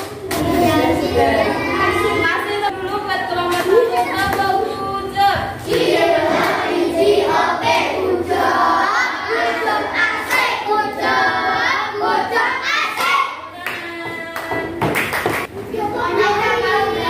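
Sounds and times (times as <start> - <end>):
children singing: 5.6 - 14.8.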